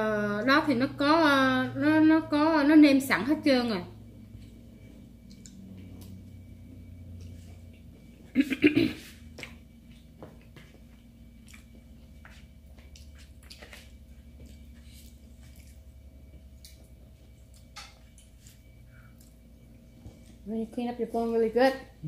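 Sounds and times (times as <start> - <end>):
chewing and mouth noises: 4.4 - 6.3, 9.4 - 19.5.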